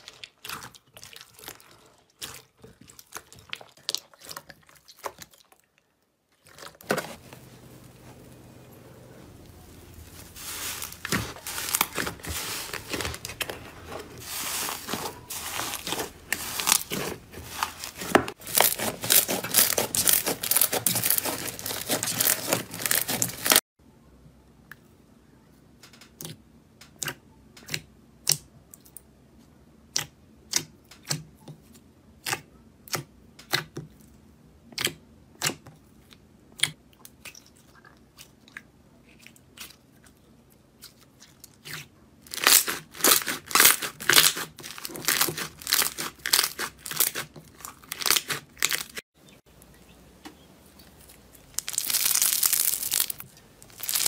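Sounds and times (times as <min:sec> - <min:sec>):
slime tearing and crackling: 0:10.0 - 0:13.5, 0:14.2 - 0:23.6, 0:41.6 - 0:49.0, 0:51.1 - 0:54.0.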